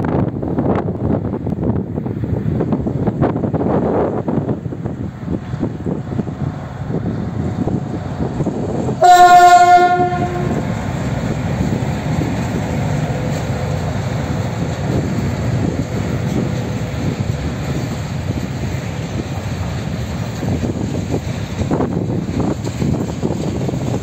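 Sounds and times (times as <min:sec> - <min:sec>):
freight train rumbling past: 0:00.0 - 0:24.0
locomotive horn blast: 0:09.0 - 0:10.7.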